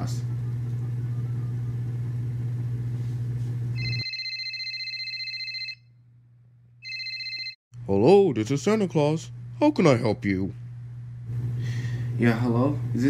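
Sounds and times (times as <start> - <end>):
low hum with hiss: 0.0 - 4.0, 5.0 - 13.0
telephone ringing: 3.8 - 6.0, 6.8 - 7.6.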